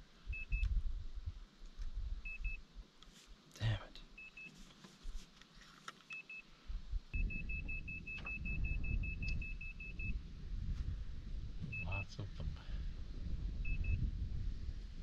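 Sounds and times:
low rumble: 6.7 - 15.0
electronic alarm beeping: 7.2 - 10.2, 11.7 - 12.1, 13.7 - 14.0.

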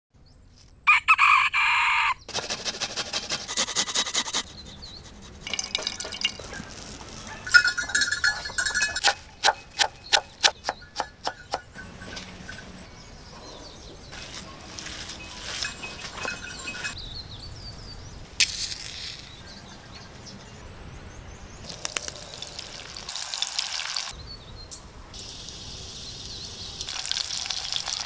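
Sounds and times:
rooster crowing: 0.9 - 2.2.

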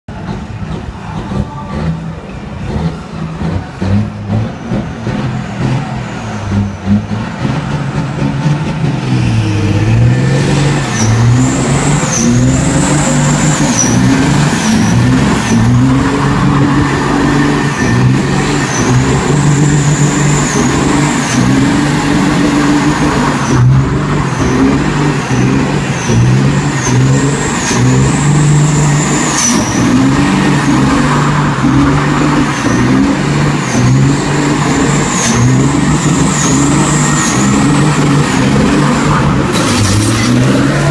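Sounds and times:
diesel truck engine revving: 0.0 - 40.9
tyres squealing: 9.5 - 40.9.

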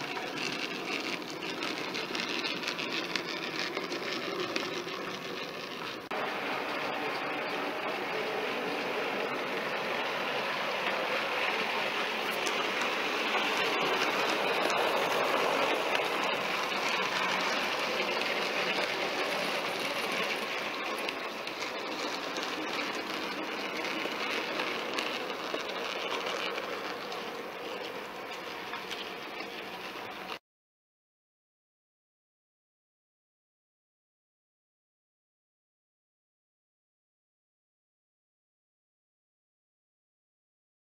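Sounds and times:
model train whirring rattle: 0.0 - 30.4.

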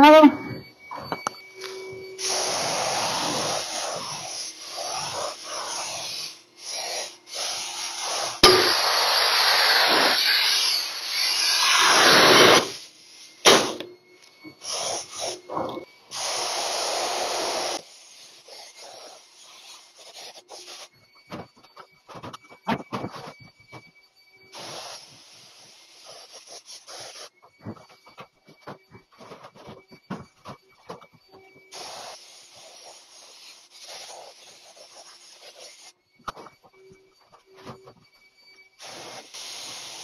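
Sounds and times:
spray gun hissing in bursts: 2.2 - 13.6, 14.6 - 15.4, 16.1 - 20.9, 24.6 - 27.3, 31.7 - 35.9, 38.8 - 40.0.

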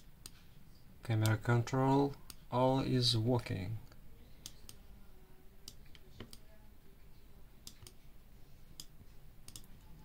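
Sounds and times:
faint computer clicks: 9.5 - 9.8.

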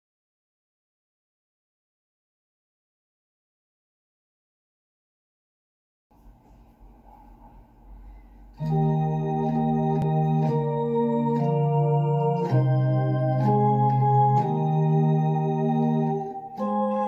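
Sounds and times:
faint hum: 6.1 - 10.5
electronic organ chords: 8.5 - 17.0.

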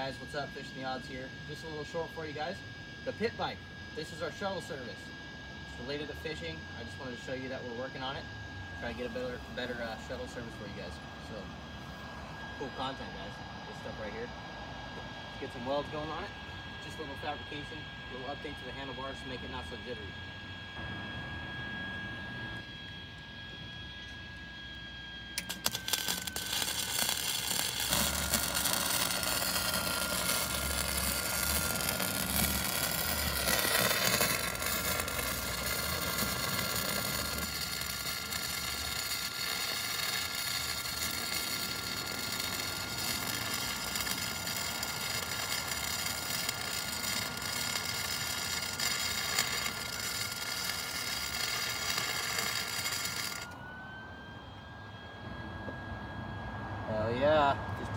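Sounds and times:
welding arc crackling: 25.4 - 53.5.

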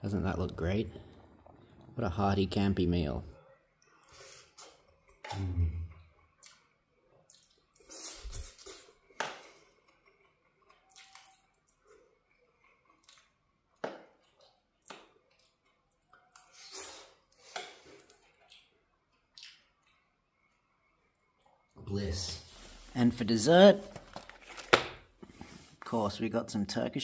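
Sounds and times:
soft wet chewing: 3.5 - 21.8.

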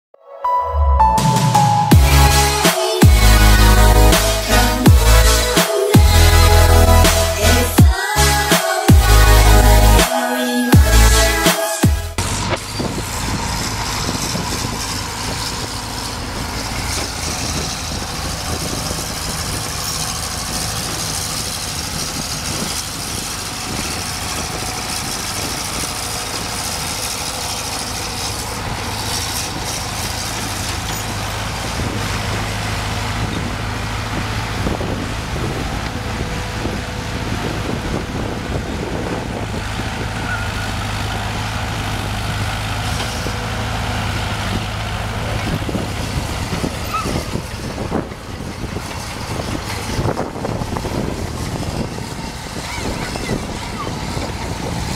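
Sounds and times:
excavator diesel engine running: 0.6 - 54.9
excavator digging dirt: 12.1 - 54.9.

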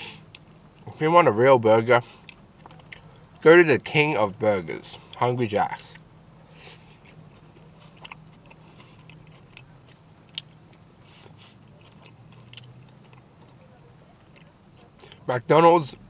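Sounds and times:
low steady hum: 0.0 - 16.0
faint chewing: 2.1 - 3.4, 5.8 - 15.3.

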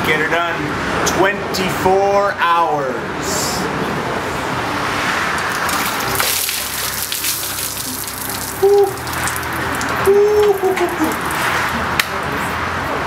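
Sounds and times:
water gushing and splashing: 5.4 - 11.8
person yelping: 8.6 - 9.0, 10.0 - 11.3.

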